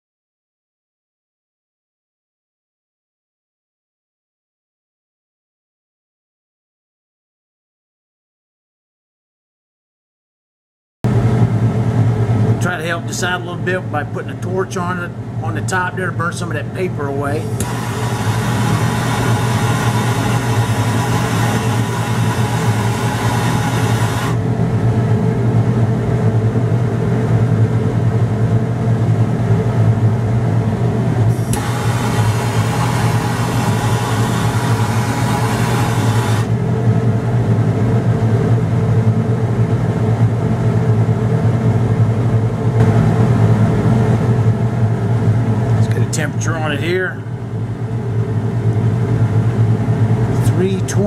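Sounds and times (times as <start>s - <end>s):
ventilation fan hum: 11.1s - 51.0s
torch flame hissing: 17.4s - 24.4s, 31.3s - 36.5s.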